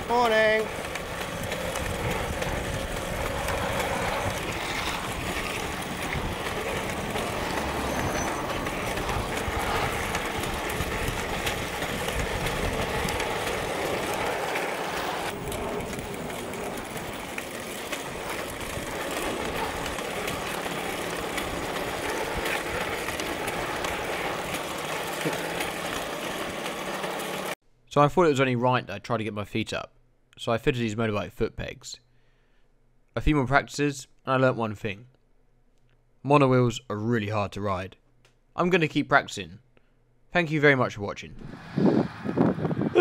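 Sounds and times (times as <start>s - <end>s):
monowheel rolling and motor noise: 0.0s - 27.6s, 41.4s - 43.0s.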